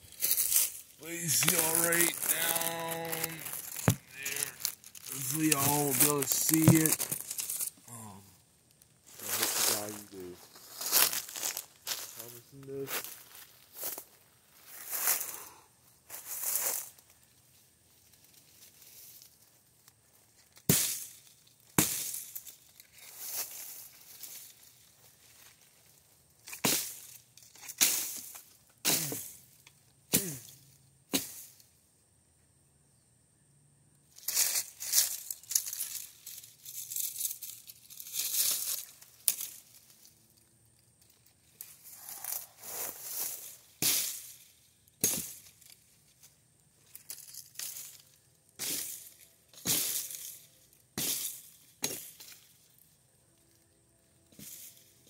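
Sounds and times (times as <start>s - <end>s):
axe chopping into trees: 20.6s - 21.2s, 21.8s - 22.3s, 31.1s - 31.5s, 45.0s - 45.4s.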